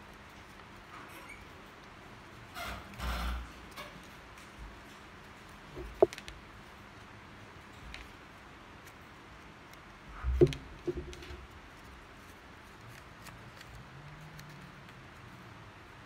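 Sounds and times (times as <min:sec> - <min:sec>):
knock on wooden tabletop: 0:10.4 - 0:11.2.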